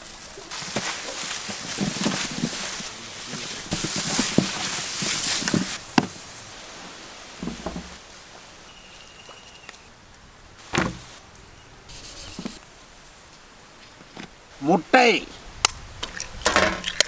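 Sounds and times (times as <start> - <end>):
hissing crackling rustle: 0.0 - 16.4
hands patting mixture: 0.4 - 6.2
thump: 7.4 - 8.0, 10.7 - 11.1.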